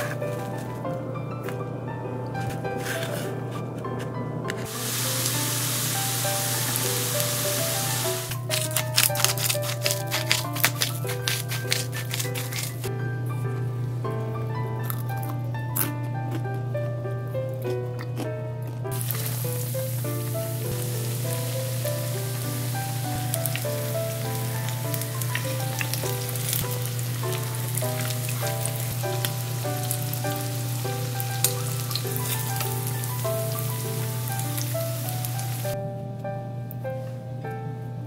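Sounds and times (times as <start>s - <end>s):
soft background music: 0.0s - 38.0s
patties sizzling in hot oil: 4.7s - 12.9s, 18.9s - 35.8s.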